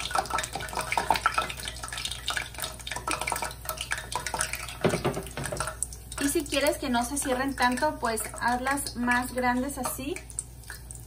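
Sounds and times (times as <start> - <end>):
dough frying in hot oil: 0.0 - 11.0
knock: 4.8 - 5.6.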